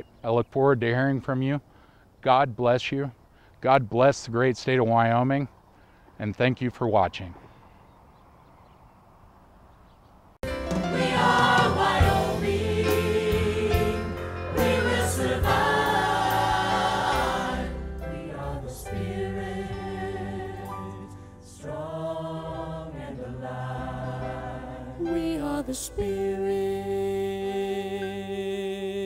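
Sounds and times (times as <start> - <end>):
choir singing with backing music: 10.5 - 29.0.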